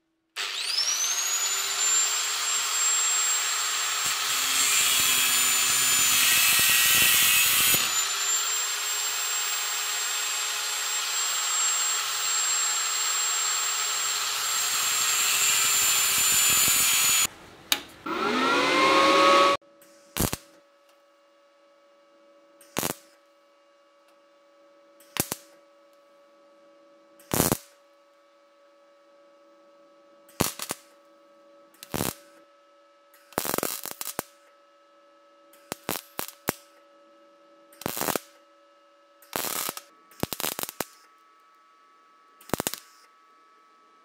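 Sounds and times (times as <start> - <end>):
welder arc crackling: 0.4 - 19.5, 20.2 - 20.5, 22.7 - 23.1, 25.1 - 25.5, 27.3 - 27.7, 30.4 - 30.9, 31.8 - 32.3, 33.3 - 34.4, 35.6 - 36.7, 37.8 - 38.4, 39.3 - 41.1, 42.4 - 43.0.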